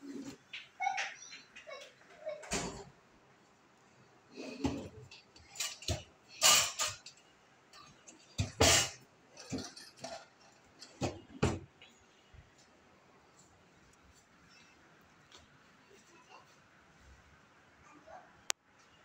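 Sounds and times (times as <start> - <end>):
drawers opening and shutting: 4.4 - 7.0, 7.8 - 11.7
knocks and clinks: 5.4 - 7.2, 7.8 - 11.6.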